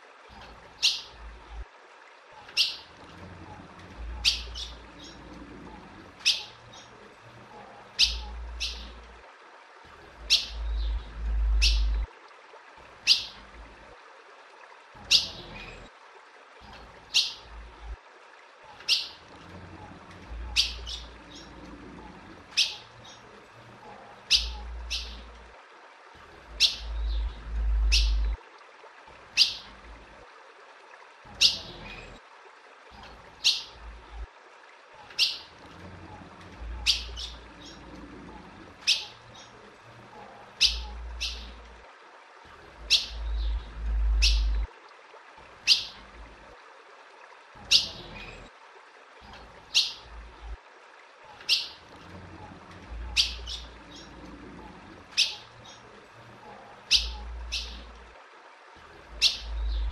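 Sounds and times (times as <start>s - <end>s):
bird chirping: 4.2s - 5.2s, 8.0s - 9.0s, 10.3s - 12.0s, 20.5s - 21.5s, 24.3s - 25.3s, 26.6s - 28.4s, 36.8s - 37.8s, 40.6s - 41.6s, 42.9s - 44.6s, 53.1s - 54.1s, 56.9s - 57.9s, 59.2s - 59.9s
low rumble: 10.6s - 12.1s, 26.9s - 28.4s, 43.2s - 44.7s.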